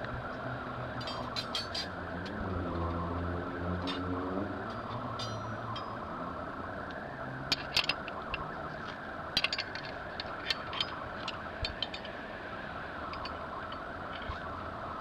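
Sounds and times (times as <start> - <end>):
metal wrench clinking: 1.0 - 1.9, 4.7 - 6.0, 7.5 - 8.5, 9.4 - 12.2, 13.1 - 14.4.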